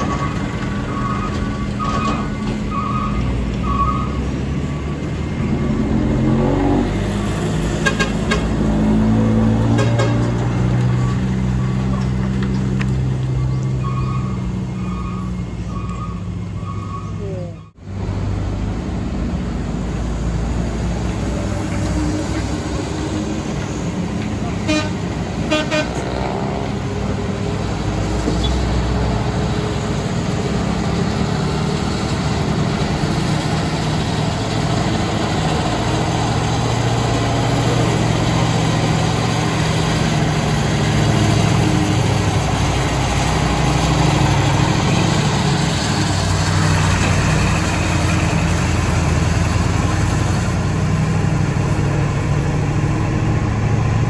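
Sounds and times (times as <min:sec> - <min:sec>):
heavy diesel trucks rumbling: 0:00.0 - 0:54.0
truck horn toots: 0:07.8 - 0:08.6, 0:09.6 - 0:10.4, 0:24.6 - 0:26.4.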